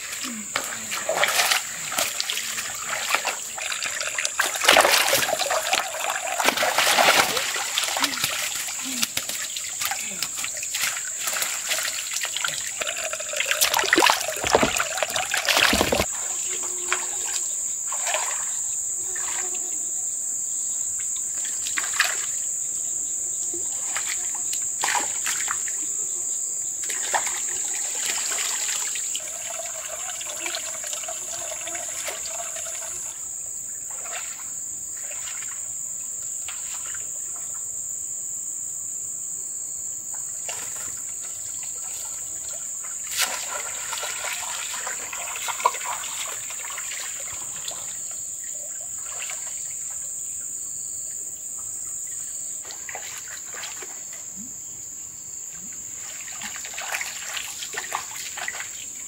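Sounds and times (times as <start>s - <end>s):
pond water splashing and trickling: 0.0s - 19.5s, 21.0s - 22.5s, 23.6s - 26.0s, 26.8s - 37.7s, 40.2s - 54.5s, 55.6s - 59.0s
high insect chorus: 0.0s - 59.0s.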